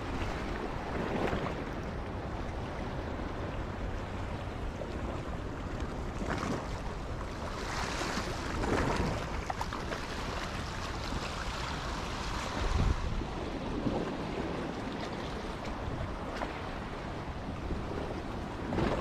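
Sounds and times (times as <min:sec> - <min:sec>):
wind buffeting microphone: 0:00.0 - 0:19.0
waves washing over rocks: 0:05.9 - 0:19.0.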